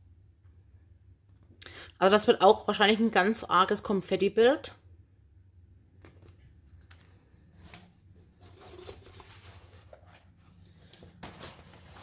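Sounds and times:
low steady hum: 0.0s - 12.0s
paper rustling: 6.0s - 12.0s.

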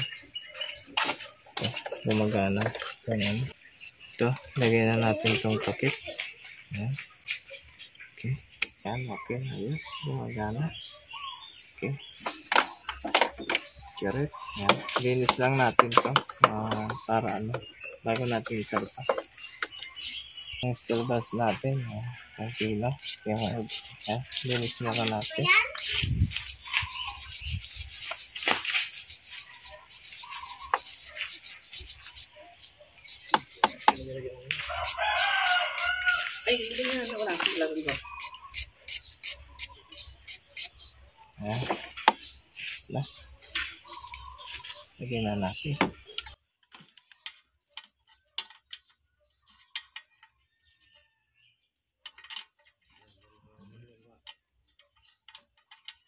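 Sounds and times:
wire brush scrubbing metal: 22.4s - 32.4s, 33.0s - 34.0s, 34.6s - 40.8s
rooster crowing: 34.6s - 36.7s.

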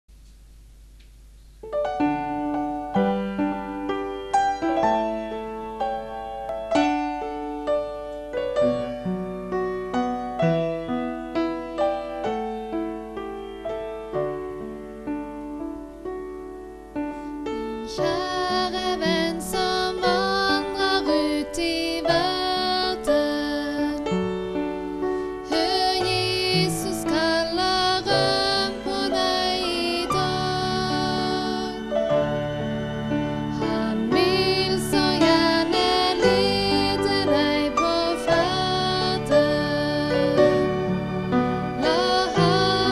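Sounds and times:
upright piano playing: 1.6s - 42.9s
woman singing: 17.5s - 24.8s, 25.4s - 32.2s, 33.5s - 40.8s, 41.8s - 42.9s.

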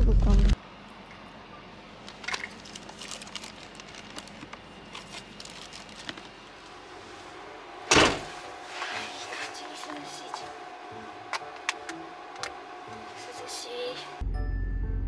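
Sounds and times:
ice packs clicking in cooler: 2.1s - 6.4s.

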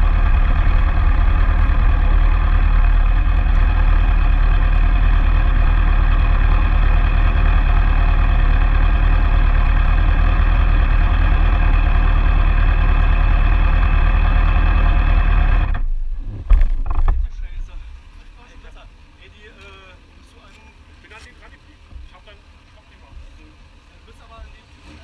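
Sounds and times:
motorcycle engine idling: 0.0s - 19.2s.

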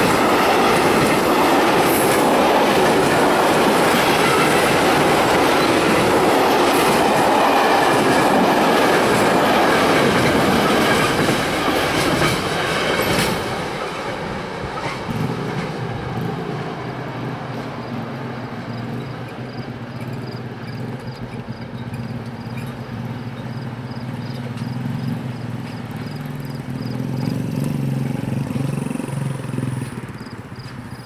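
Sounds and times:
cars driving over rails: 0.0s - 31.0s.

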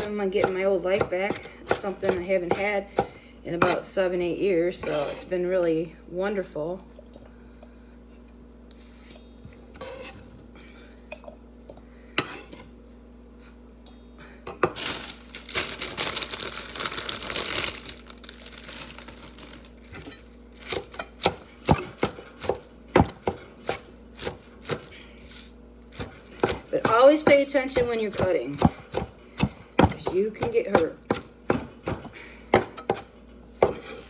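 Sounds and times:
knife chopping on cutting board: 26.0s - 34.0s.

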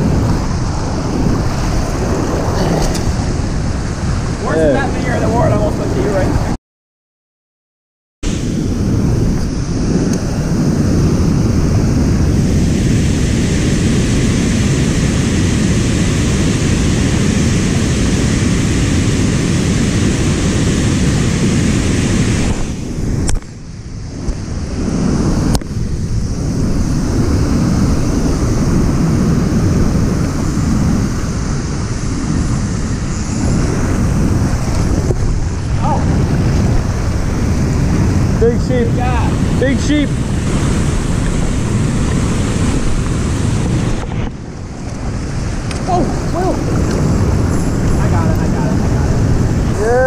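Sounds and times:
whitewater rushing: 0.0s - 6.5s, 24.7s - 50.0s
wind buffeting microphone: 0.0s - 6.6s, 8.2s - 50.0s.

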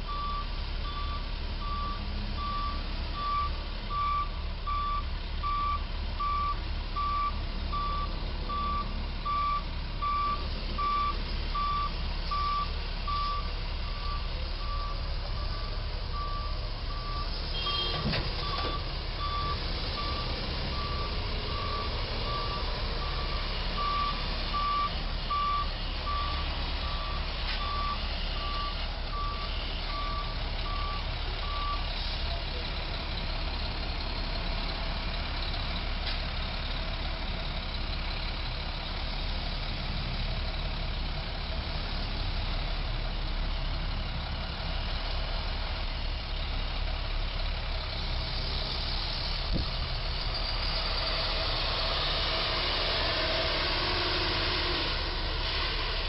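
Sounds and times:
truck reversing alarm beeping: 0.0s - 38.5s
low engine rumble: 0.0s - 56.0s.

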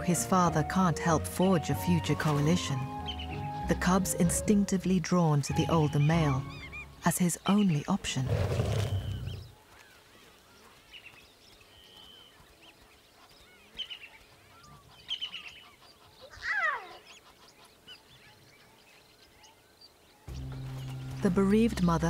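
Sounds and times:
birds chirping: 0.0s - 22.0s
bird whistle: 8.8s - 9.5s.

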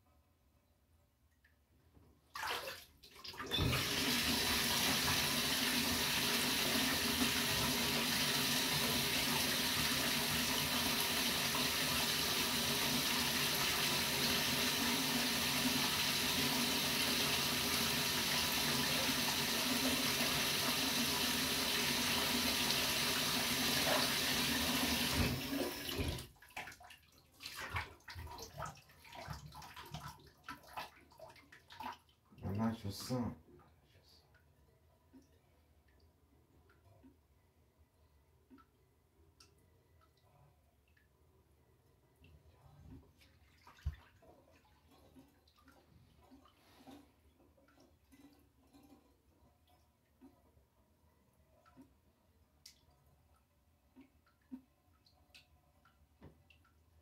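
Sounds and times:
tap water running into bathtub: 1.4s - 33.2s, 42.2s - 50.6s
water splashes: 2.3s - 3.6s.

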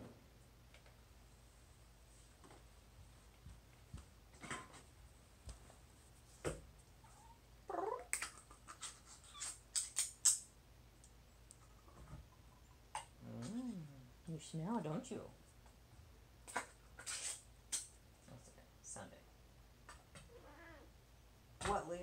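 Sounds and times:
cat meowing: 20.3s - 20.9s.

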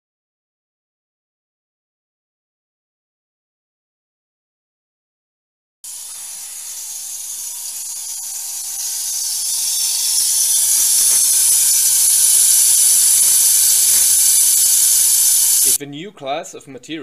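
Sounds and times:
high-pitched hiss and sizzle: 5.9s - 15.8s.

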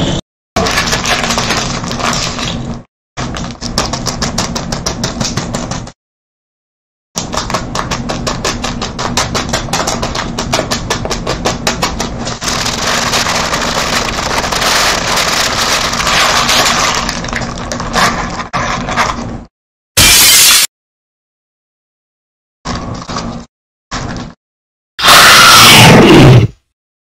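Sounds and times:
paper wrapper crinkling: 0.6s - 4.3s, 12.2s - 18.5s.

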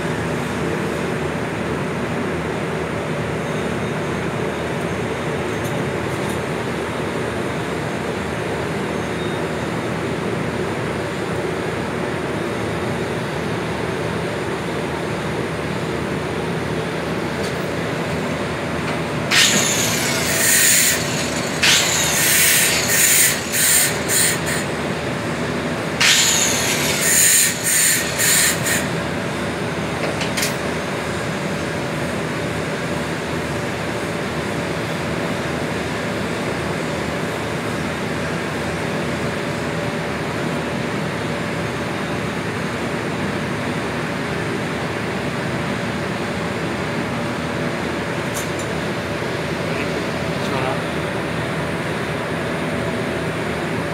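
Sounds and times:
workshop hum: 0.0s - 53.9s
metal-on-metal filing strokes: 19.3s - 24.7s, 26.0s - 28.9s.

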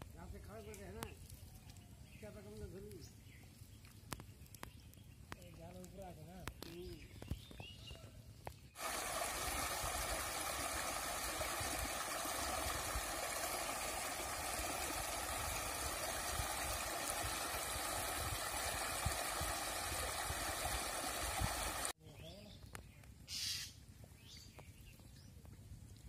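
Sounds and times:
water rushing and splashing: 8.8s - 22.0s.

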